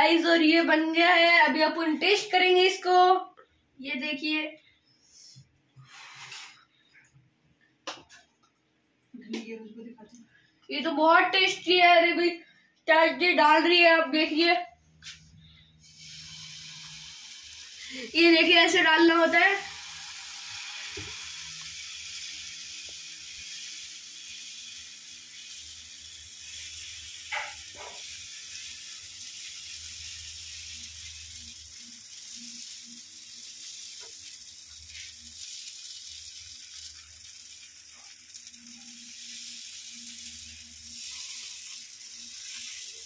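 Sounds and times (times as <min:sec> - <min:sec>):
batter sizzling on a hot pan: 0:05.8 - 0:06.6, 0:15.0 - 0:43.0.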